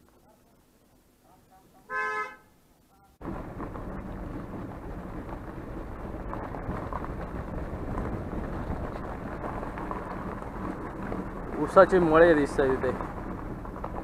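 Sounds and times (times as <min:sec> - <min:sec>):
vehicle running: 0:03.2 - 0:14.0
wind buffeting microphone: 0:03.2 - 0:14.0.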